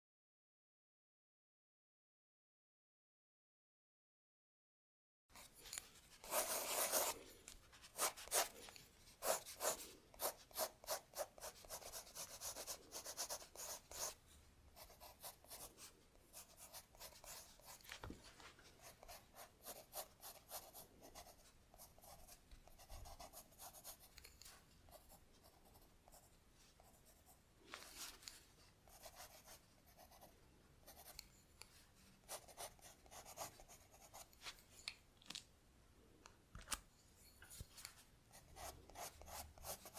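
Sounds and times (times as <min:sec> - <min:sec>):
stylus scratching on tablet: 0:05.4 - 0:07.2, 0:07.8 - 0:14.2, 0:14.8 - 0:17.9, 0:38.4 - 0:39.9.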